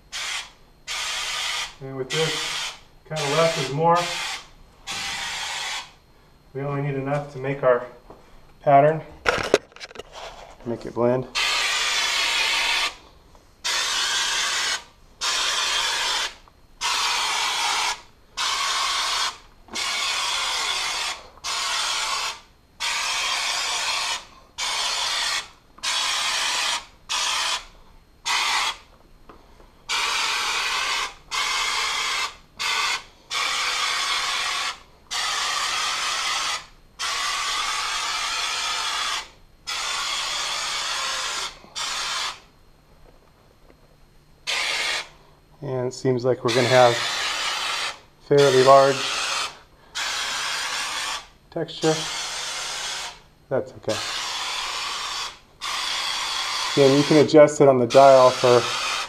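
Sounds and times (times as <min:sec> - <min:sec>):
aerosol can spraying hiss: 0:00.1 - 0:06.0, 0:11.4 - 0:13.0, 0:13.6 - 0:28.9, 0:29.9 - 0:42.5, 0:44.5 - 0:45.1, 0:46.5 - 0:53.2, 0:54.0 - 0:57.3, 0:57.9 - 0:59.0.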